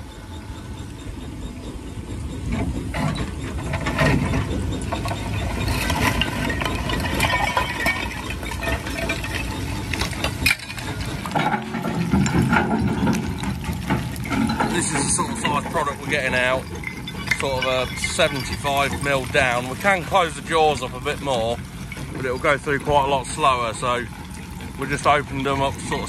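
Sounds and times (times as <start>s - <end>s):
jaw crusher grinding stone: 3.1s - 26.0s
crushed stone pouring: 5.6s - 26.0s.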